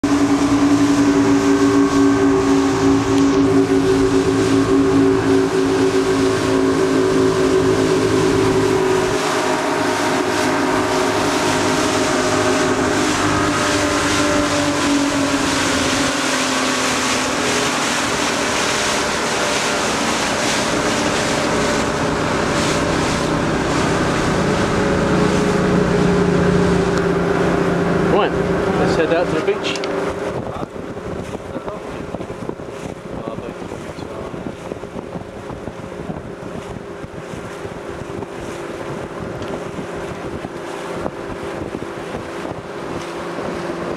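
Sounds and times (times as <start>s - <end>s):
low hum: 0.0s - 32.6s
outboard engines running: 0.0s - 43.9s.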